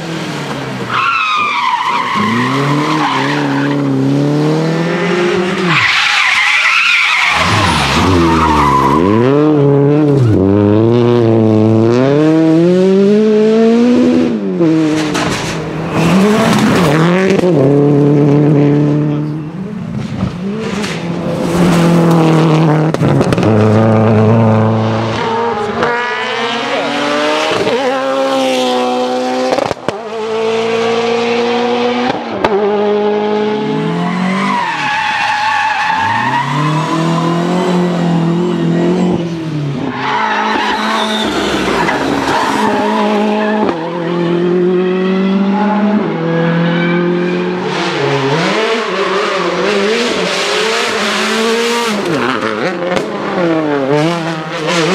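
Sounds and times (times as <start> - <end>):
rally car engines revving: 0.0 - 54.9
tyres squealing and skidding: 0.8 - 4.0, 5.5 - 10.5, 33.8 - 44.2.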